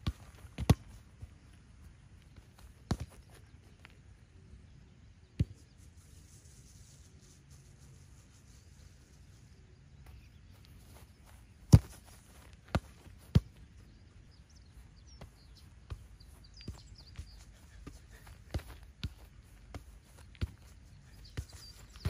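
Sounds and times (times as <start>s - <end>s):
ball kicked on grass: 0.0s - 4.0s, 5.4s - 5.8s, 10.0s - 22.0s
faint birds chirping: 0.0s - 22.0s.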